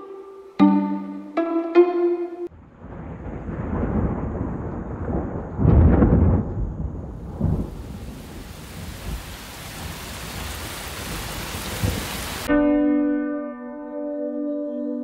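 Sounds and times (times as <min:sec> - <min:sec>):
rain falling: 0:02.5 - 0:12.5
thunder rumbling: 0:02.5 - 0:12.5.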